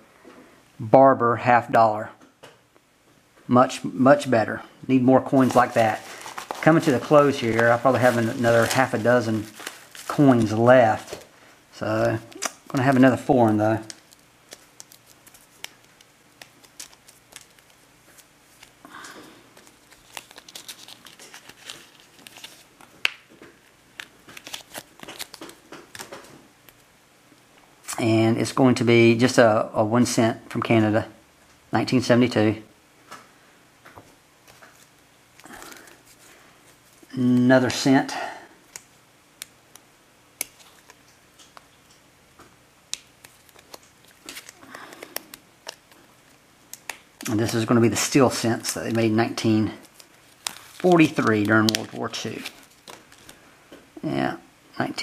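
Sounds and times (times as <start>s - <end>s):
plastic sleeve crinkling: 5.2s - 26.9s, 34.4s - 37.9s, 38.6s - 42.0s, 42.9s - 53.4s.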